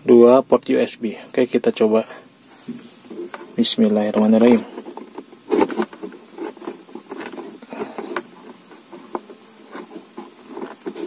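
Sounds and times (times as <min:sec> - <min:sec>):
plastic scraping: 0:02.6 - 0:11.0.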